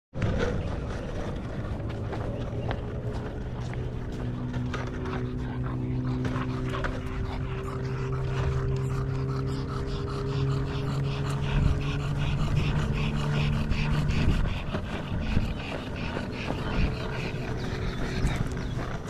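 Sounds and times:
skateboard wheels rolling on asphalt: 0.2s - 5.0s
dog panting: 0.2s - 19.0s.

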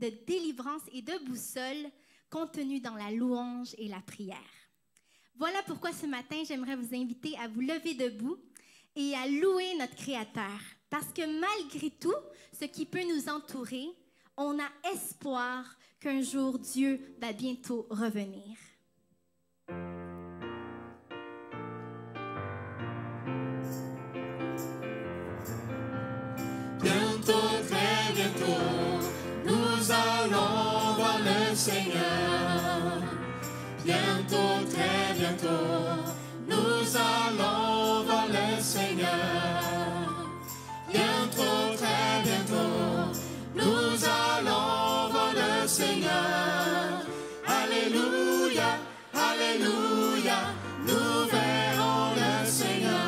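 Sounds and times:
piano accompaniment: 19.7s - 53.0s
voices singing a hymn: 26.7s - 53.0s.

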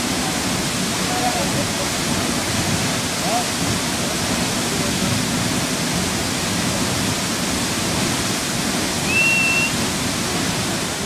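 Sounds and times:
waterfall roaring onto rock: 0.0s - 11.0s
high whistle: 9.0s - 9.8s.

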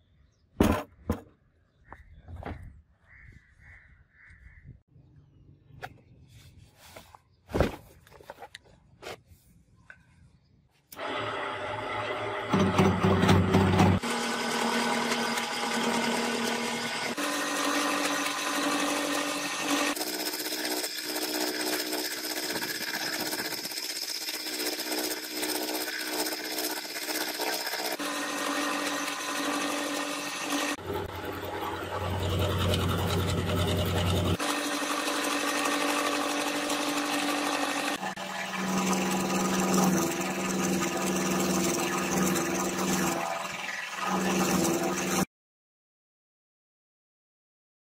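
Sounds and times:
milling machine cutting steel: 11.0s - 45.3s.

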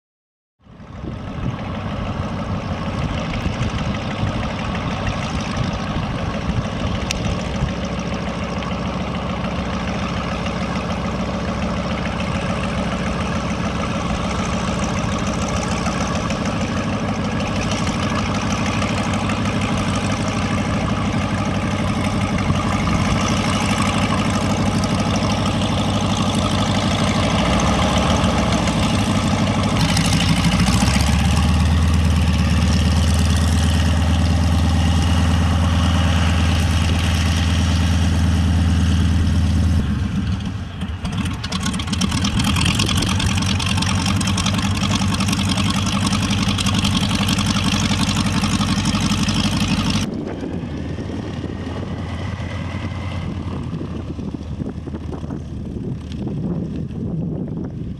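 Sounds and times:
radial aircraft engine running: 0.6s - 57.9s.

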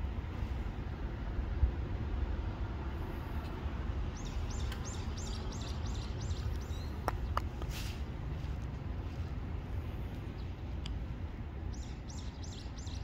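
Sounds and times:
low outdoor rumble: 0.0s - 13.0s
small bird chirping: 4.2s - 7.4s, 11.7s - 13.0s.

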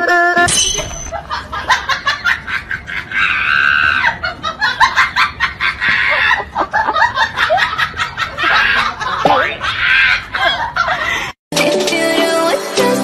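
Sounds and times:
cackling laughter: 1.1s - 11.3s.

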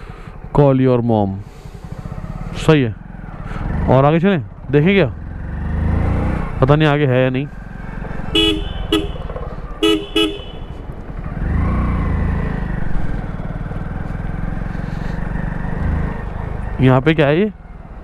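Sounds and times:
small motorcycle engine running: 0.0s - 18.0s
horn toots: 8.3s - 10.9s.

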